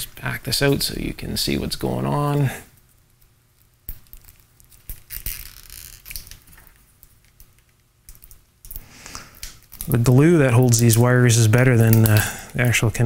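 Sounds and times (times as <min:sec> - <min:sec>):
tape crinkling and tearing: 0:02.8 - 0:08.4.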